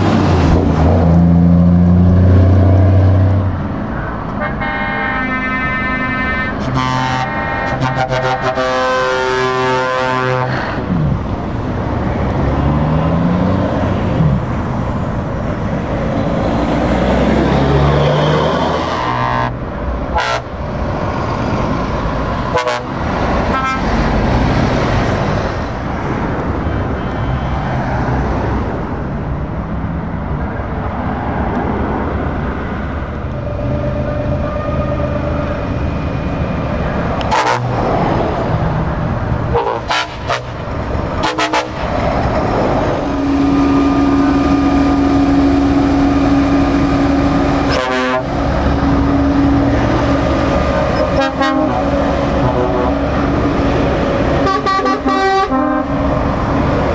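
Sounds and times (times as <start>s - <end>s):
heavy trucks driving past: 0.0s - 56.9s
truck horn toots: 4.4s - 10.8s, 18.7s - 20.6s, 22.5s - 24.0s, 37.2s - 37.8s, 39.5s - 41.9s, 42.9s - 50.0s, 50.8s - 53.2s, 54.4s - 55.9s.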